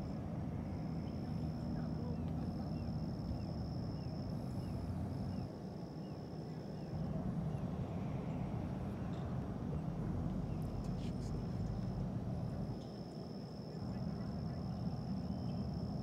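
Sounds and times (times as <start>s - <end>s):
steady low rumble: 6.6s - 12.8s.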